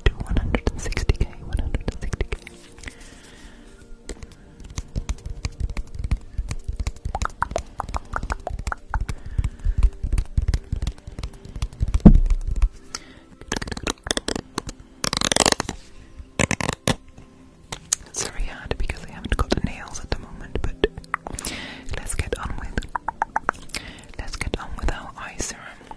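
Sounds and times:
fingers tapping microphone: 4.1 - 12.8, 22.7 - 23.7
low thumps: 11.9 - 12.8.

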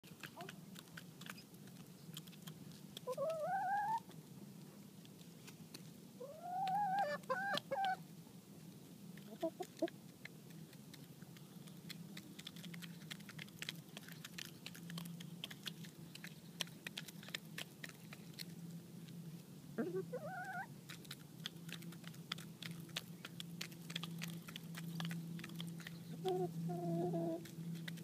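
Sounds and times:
hens calling: 3.0 - 4.1, 6.2 - 8.0, 19.8 - 20.7, 25.8 - 27.5
hens clucking: 3.0 - 4.1, 6.2 - 8.0, 9.2 - 10.0, 19.8 - 27.5.

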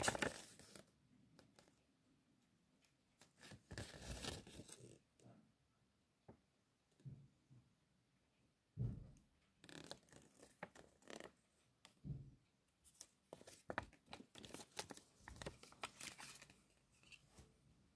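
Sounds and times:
paper rustling and crinkling: 0.0 - 0.8, 3.2 - 4.9, 12.9 - 17.5.

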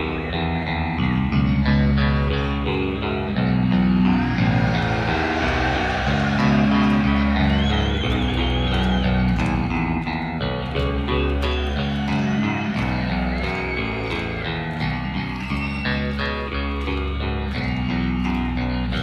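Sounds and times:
bass guitar: 0.0 - 19.0
distorted electric guitars: 0.0 - 19.0
high lead guitar line: 0.0 - 19.0
steady drums: 3.8 - 9.6.

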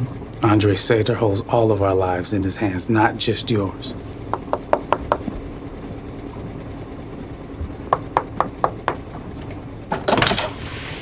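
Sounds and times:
low steady hum: 0.0 - 11.0
knocking on door: 4.3 - 5.4, 7.9 - 9.1.

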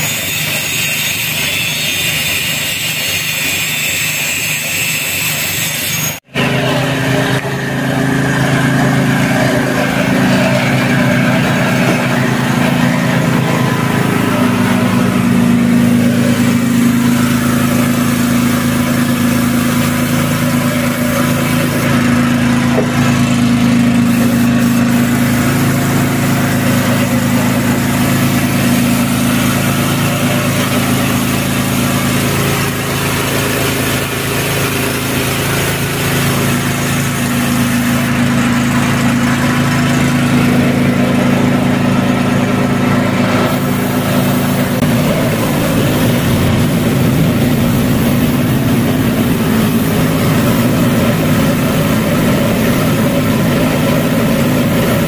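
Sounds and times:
diesel truck engine idling: 6.3 - 55.0.

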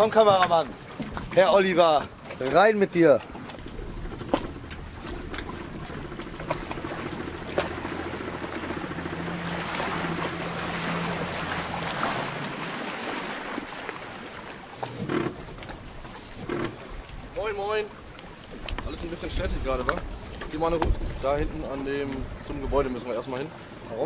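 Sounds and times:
outboard motor running: 0.0 - 24.0
water splashing at hull: 0.0 - 24.0
wind buffeting microphone: 15.4 - 23.4.

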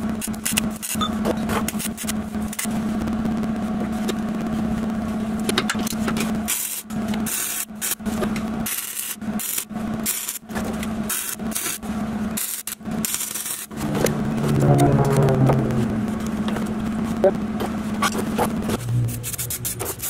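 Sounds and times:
steady low hum: 13.7 - 18.8.

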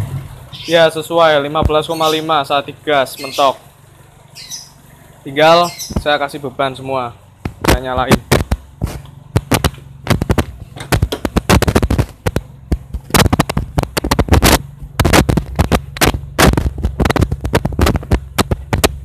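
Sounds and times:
car engine idling: 0.0 - 19.0
loud sharp cracks and pops: 9.3 - 19.0.

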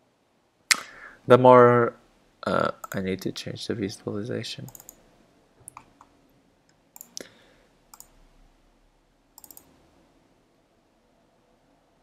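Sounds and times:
computer mouse clicks: 2.8 - 3.0, 4.7 - 5.0, 5.6 - 6.1, 6.7 - 7.3, 7.9 - 8.2, 9.4 - 9.8.

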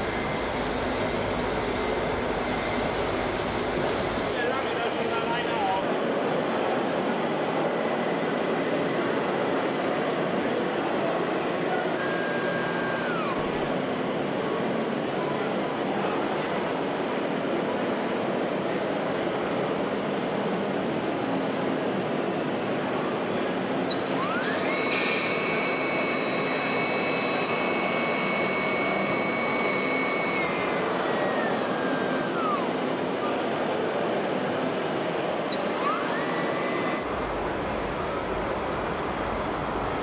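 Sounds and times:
model truck motor whine: 0.0 - 5.2, 11.5 - 15.3, 23.7 - 38.3.

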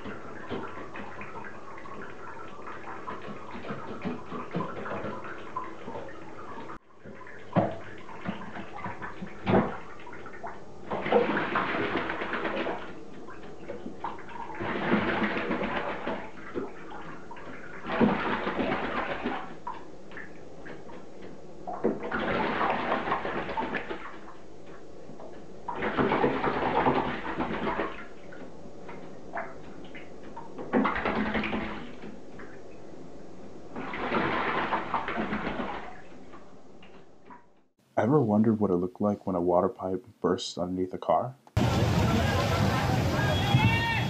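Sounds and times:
bird wings splashing water: 0.0 - 32.9, 33.7 - 37.4.

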